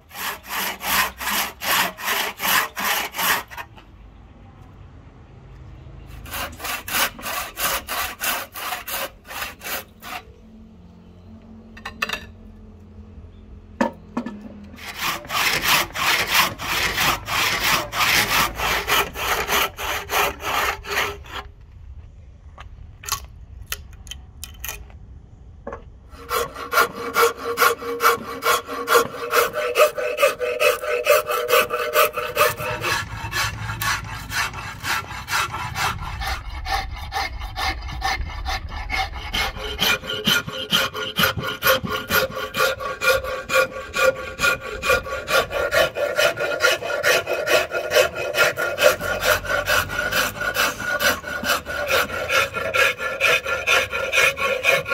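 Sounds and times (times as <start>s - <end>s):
handsaw cutting wood: 0.0s - 3.7s, 6.1s - 10.3s, 14.8s - 21.5s, 26.2s - 54.9s
file scraping wood: 0.0s - 3.8s, 6.1s - 10.3s, 14.8s - 21.5s, 26.2s - 54.9s.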